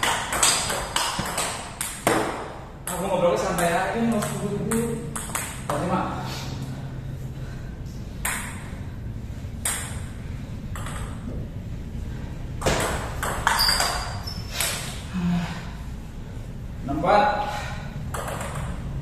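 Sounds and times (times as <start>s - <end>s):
table tennis ball clicking: 0.0s - 5.8s, 8.2s - 8.6s, 9.6s - 10.1s, 10.7s - 11.2s, 18.1s - 18.9s.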